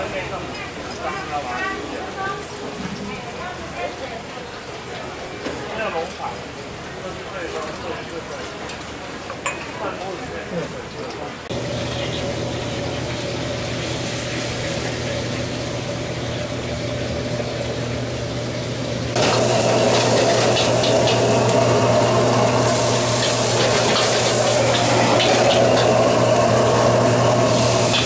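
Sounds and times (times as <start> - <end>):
wok burner roar: 11.0 - 28.0
wok sizzling: 11.5 - 28.0.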